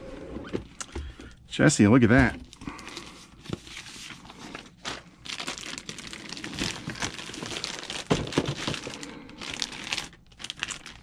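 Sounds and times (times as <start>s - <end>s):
plastic wrapping crinkling: 2.3s - 11.0s.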